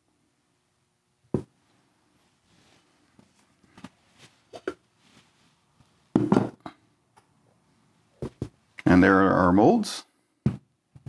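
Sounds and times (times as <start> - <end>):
molds and pots knocking on table: 1.3 - 1.5, 6.1 - 6.8, 8.2 - 8.6.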